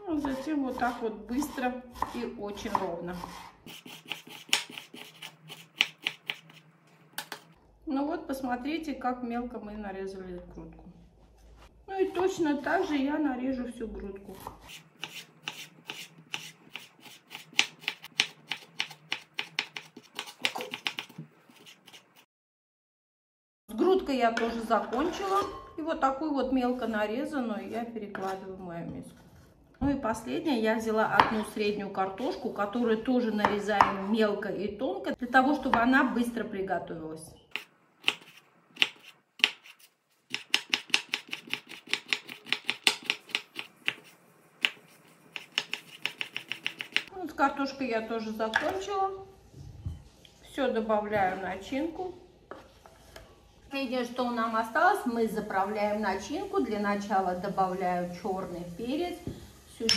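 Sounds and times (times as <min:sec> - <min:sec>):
knife chopping on wooden board: 0:00.2 - 0:06.6, 0:14.4 - 0:22.0, 0:37.6 - 0:47.1.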